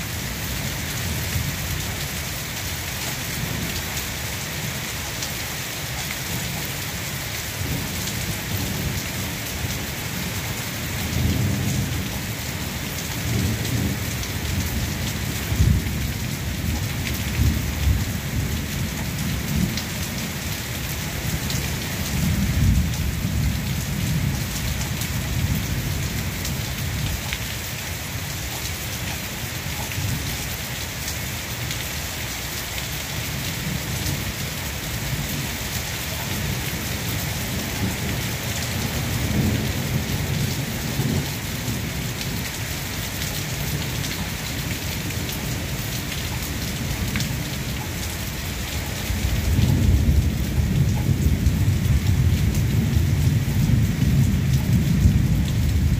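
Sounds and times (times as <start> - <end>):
steady rain hissing: 0.0 - 55.9
rolling thunder rumbles: 7.6 - 20.4, 21.1 - 27.2, 35.0 - 47.6, 49.0 - 55.9.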